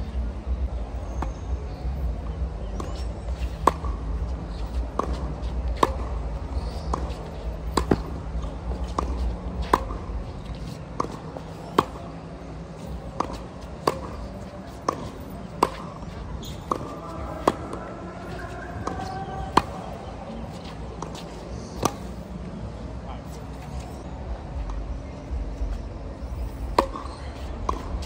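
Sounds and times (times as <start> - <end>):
tennis balls bouncing on court: 2.6 - 22.4, 26.3 - 28.0
tennis balls struck by rackets: 2.7 - 22.4, 26.3 - 28.0.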